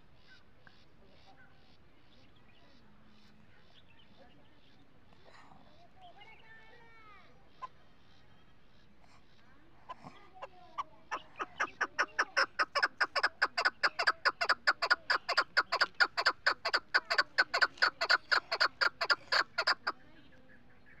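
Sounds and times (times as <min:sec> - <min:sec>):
partridge calling: 0:07.4 - 0:21.0.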